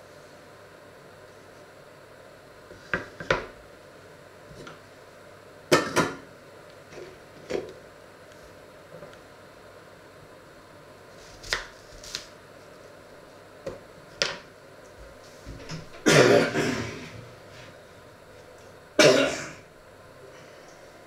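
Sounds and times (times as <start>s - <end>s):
person clearing throat: 16.0s - 17.2s, 19.0s - 19.7s.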